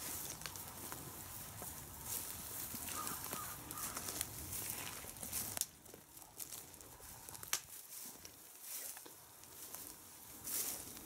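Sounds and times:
footsteps through dry grass: 0.0s - 11.0s
sharp snaps of twigs: 7.3s - 8.0s.

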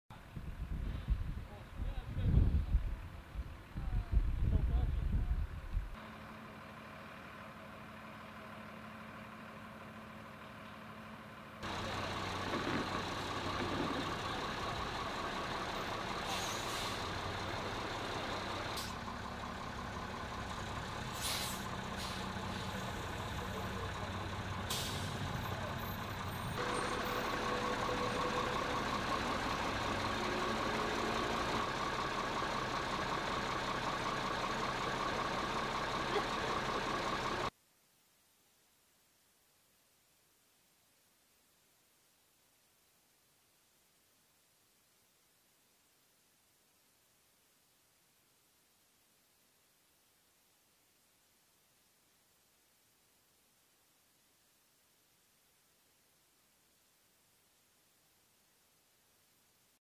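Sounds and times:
diesel engine running: 0.2s - 37.5s
air hissing: 21.1s - 22.8s.

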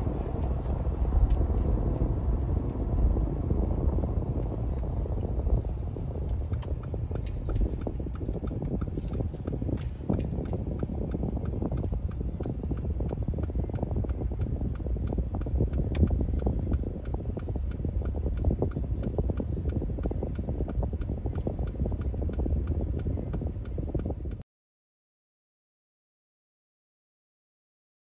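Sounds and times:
car engine rumble: 0.0s - 24.4s
fan noise: 0.0s - 24.4s
even ticking: 5.0s - 24.4s.

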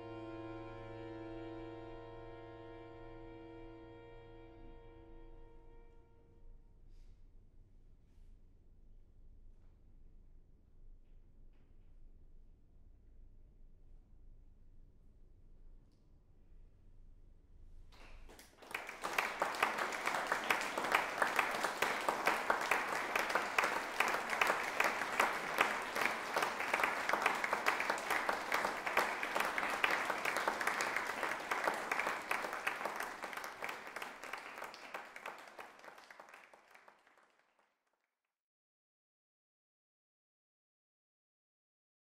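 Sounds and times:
audience applauding: 18.0s - 37.7s.

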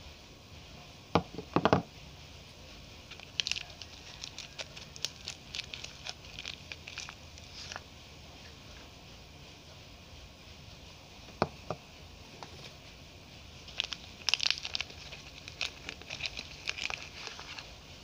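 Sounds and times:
soap bars knocking on floor: 1.2s - 1.9s
soap wrapper crinkling: 3.1s - 7.8s, 13.6s - 17.7s.

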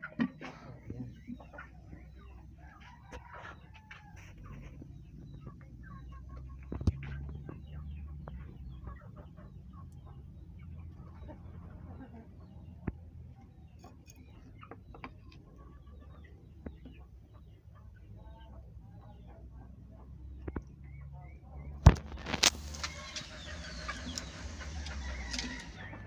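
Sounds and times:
chickens clucking: 0.0s - 26.0s
fire snapping and popping: 21.8s - 25.4s
wood fire crackling: 22.0s - 25.8s.

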